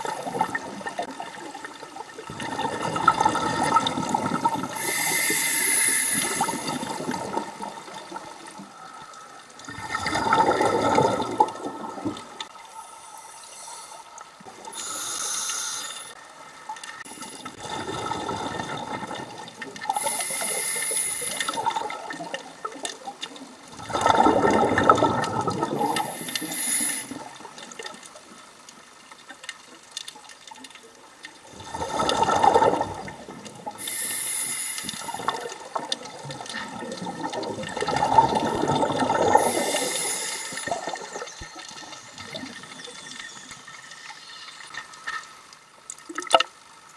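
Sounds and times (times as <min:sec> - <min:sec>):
exhaled bubbles gushing: 0:00.0 - 0:08.9, 0:09.6 - 0:12.5, 0:17.0 - 0:28.0, 0:31.4 - 0:34.0, 0:34.8 - 0:43.5
regulator hiss on inhale: 0:04.7 - 0:07.0, 0:12.6 - 0:16.2, 0:19.9 - 0:21.7, 0:25.8 - 0:27.3, 0:33.8 - 0:35.3, 0:39.3 - 0:41.0.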